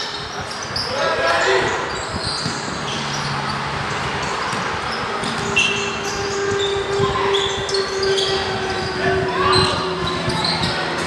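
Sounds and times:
shoes squeaking on floor: 0.0s - 11.0s
basketball bouncing: 1.9s - 7.0s.

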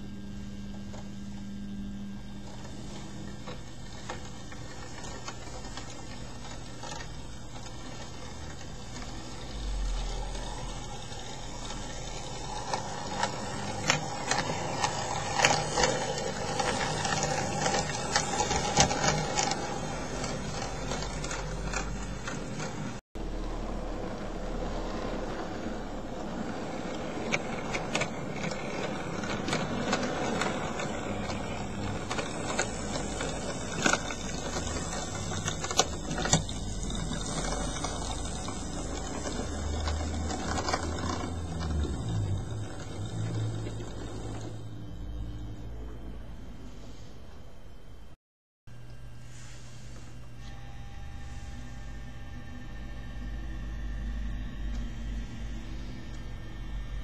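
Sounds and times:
model train motor whirr: 2.4s - 46.0s
wheels clicking over rail joints: 2.7s - 23.0s, 24.6s - 44.7s.

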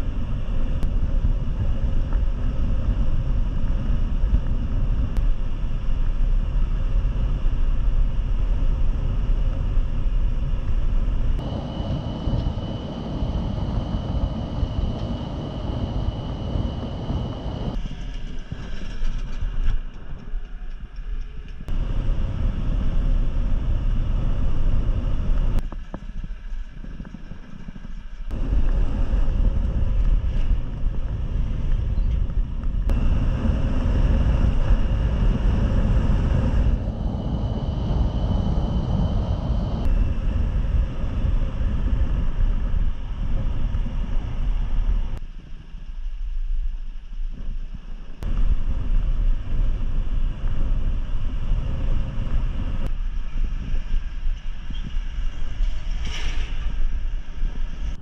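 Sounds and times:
faint high whine: 0.0s - 19.0s, 21.2s - 25.6s, 28.2s - 58.0s
scooter engine and tyre rumble: 0.0s - 45.2s
wind buffeting microphone: 0.0s - 45.8s, 47.2s - 58.0s.

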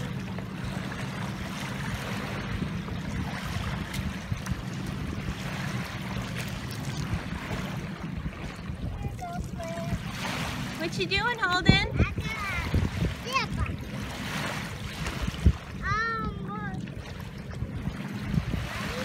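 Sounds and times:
feet wading splashes: 0.0s - 9.3s
lake water washing at shoreline: 0.0s - 19.0s
low rumble: 0.0s - 19.0s.

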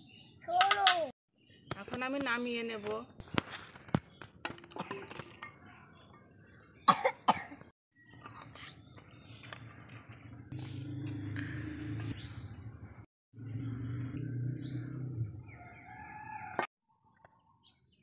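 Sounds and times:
person coughing: 6.9s - 7.6s.

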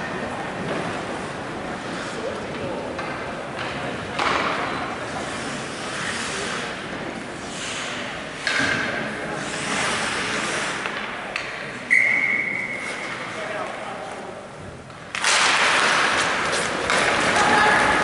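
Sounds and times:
echoing indistinct voices: 16.2s - 18.0s.

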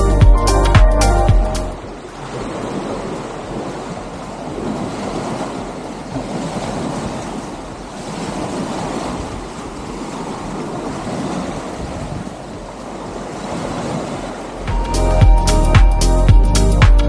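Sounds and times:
wind rumble on microphone: 1.4s - 15.4s
waves breaking on a beach: 1.8s - 15.0s.

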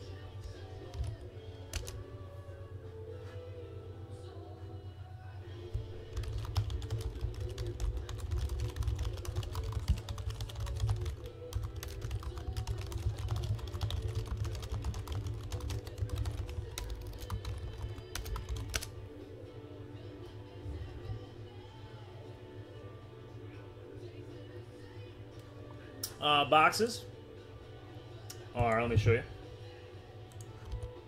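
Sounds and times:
quiet background music: 0.0s - 31.0s
fast typing on keyboard: 0.9s - 2.0s, 5.8s - 18.9s, 30.6s - 30.9s.

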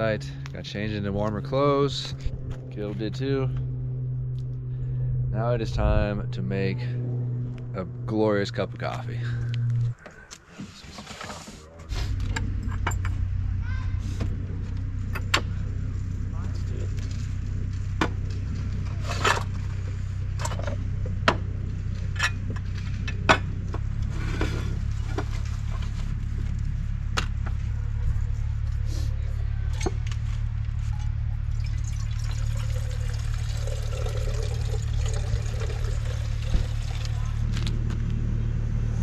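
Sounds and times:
steady low rumble: 0.0s - 10.3s, 11.8s - 39.0s
water being poured: 31.5s - 37.2s.

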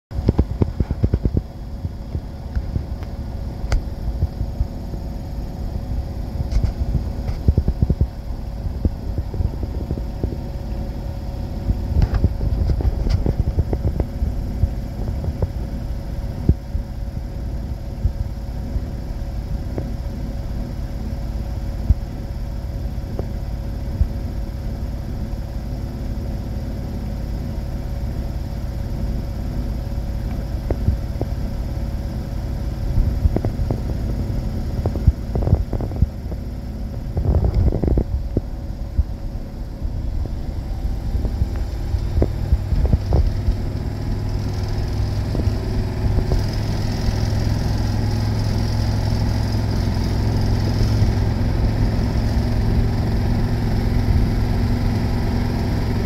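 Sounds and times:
washing machine spinning: 0.1s - 56.0s.

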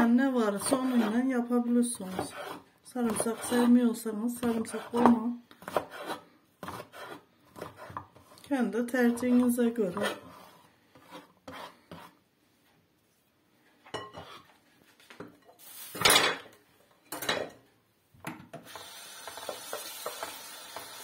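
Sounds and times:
knife scraping wooden board: 2.0s - 3.7s, 4.4s - 8.4s, 9.1s - 12.2s
kitchen tap running: 18.6s - 21.0s.

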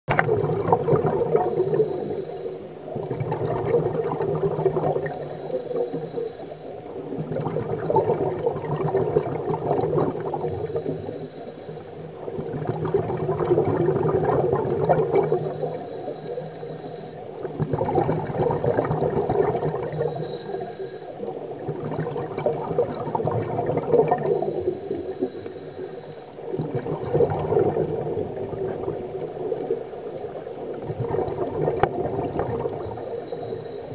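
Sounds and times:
bubbling exhalations underwater: 0.1s - 2.0s, 2.9s - 5.8s, 6.9s - 11.0s, 12.2s - 15.8s, 17.4s - 20.6s, 21.3s - 24.7s, 26.4s - 33.1s
regulator hissing inhalations: 1.4s - 2.7s, 5.0s - 6.8s, 10.4s - 12.2s, 15.2s - 17.4s, 19.9s - 21.2s, 24.3s - 26.5s, 32.8s - 33.9s.

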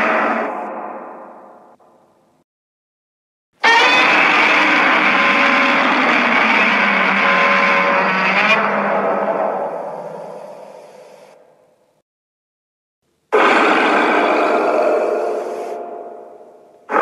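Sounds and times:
monster roar blast: 0.0s - 1.6s, 3.6s - 11.3s, 13.3s - 17.0s.

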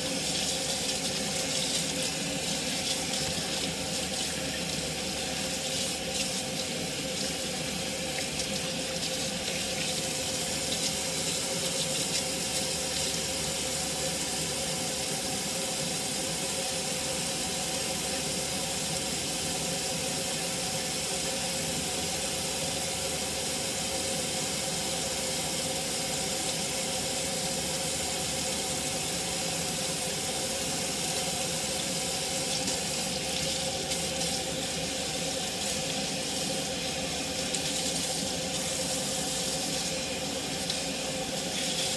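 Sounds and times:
faucet water splashing into sink: 0.0s - 13.7s, 30.4s - 41.9s.

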